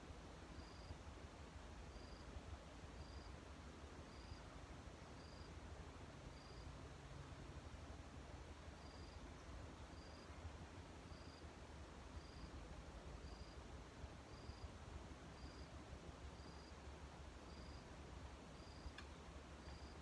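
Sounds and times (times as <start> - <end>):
insect chirping: 0.6 - 1.0, 1.9 - 2.2, 3.0 - 3.4, 4.1 - 4.5, 5.2 - 5.5, 6.3 - 6.7, 8.8 - 10.4, 11.1 - 11.4, 12.2 - 12.5, 13.2 - 13.6, 14.3 - 14.7, 15.4 - 16.8, 17.5 - 17.9, 18.5 - 19.0, 19.6 - 20.0
faint click: 18.8 - 19.8.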